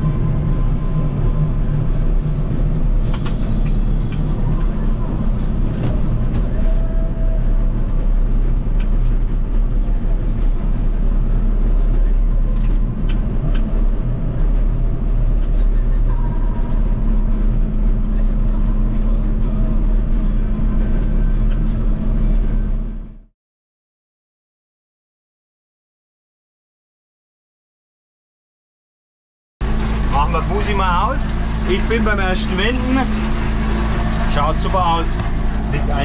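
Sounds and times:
tractor engine hum: 0.0s - 23.3s, 29.6s - 36.0s
mower working: 29.6s - 36.0s.

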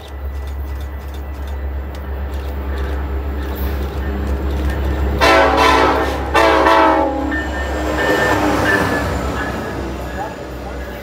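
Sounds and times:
low train rumble: 0.0s - 11.0s
train horn blasts: 5.2s - 9.1s.

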